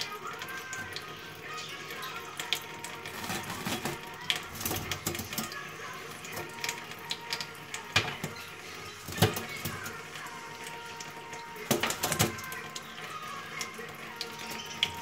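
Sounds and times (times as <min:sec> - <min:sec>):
splashes and drips on steel: 0:00.0 - 0:15.0
bird flapping wet feathers: 0:02.1 - 0:15.0
tap running onto steel sink: 0:02.4 - 0:05.6, 0:06.2 - 0:12.8.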